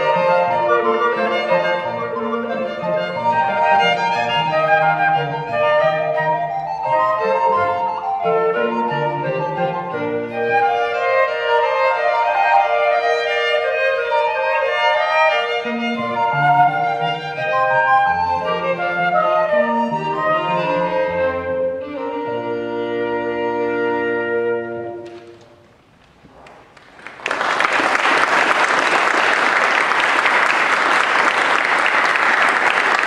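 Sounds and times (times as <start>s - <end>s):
recorder and violin baroque music: 0.0s - 25.9s
audience applause: 26.0s - 33.0s.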